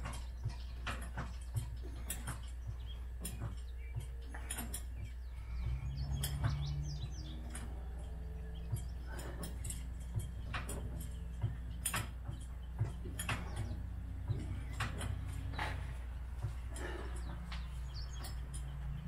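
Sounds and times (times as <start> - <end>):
floor jack clicks and creaks: 0.0 - 19.0.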